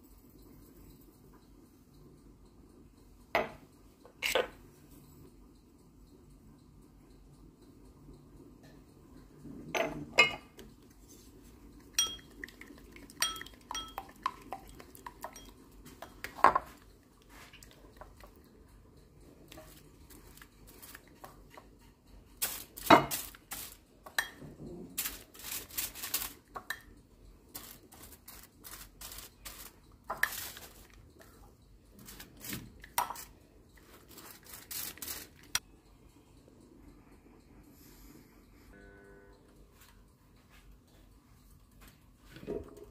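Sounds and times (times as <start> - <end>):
utensil tapping ceramic bowl: 11.9 - 16.8, 24.0 - 24.4
scraping and rustling on foil: 19.5 - 21.3, 22.3 - 23.9, 24.8 - 26.6, 27.5 - 31.4, 32.0 - 35.6.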